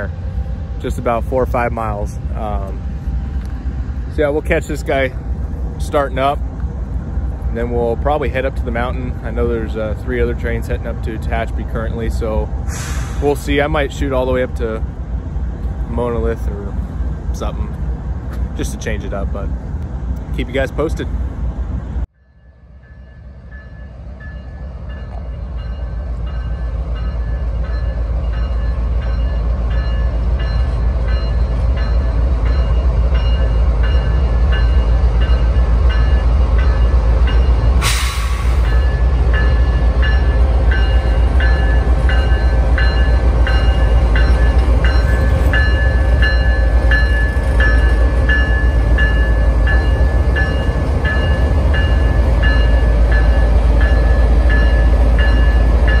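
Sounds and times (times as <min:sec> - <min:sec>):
diesel locomotive engine rumble: 0:00.0 - 0:56.0
sharp hiss: 0:12.7 - 0:13.4, 0:37.8 - 0:38.8.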